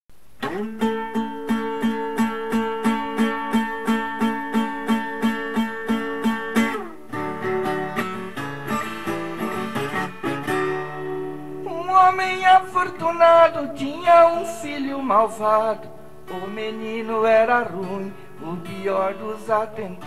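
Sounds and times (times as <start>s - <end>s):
acoustic guitar strumming: 0.4s - 20.0s.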